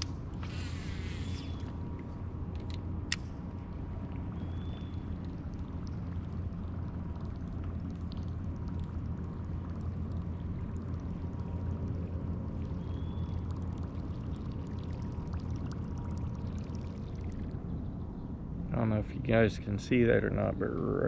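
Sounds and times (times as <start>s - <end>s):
small clicks: 0.0s - 1.7s, 2.5s - 3.3s
water gurgling: 0.0s - 2.0s, 3.6s - 18.1s
low rumbling noise: 0.0s - 21.0s.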